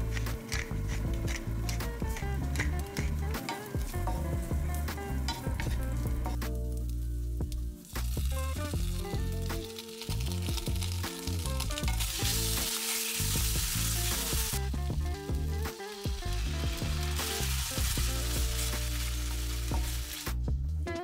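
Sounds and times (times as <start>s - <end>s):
background music: 0.0s - 21.0s
food sizzling in a frying pan: 6.5s - 20.4s.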